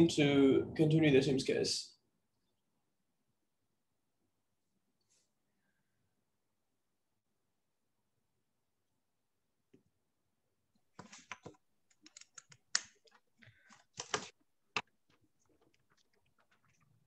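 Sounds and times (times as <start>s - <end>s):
keyboard typing: 11.0s - 17.0s.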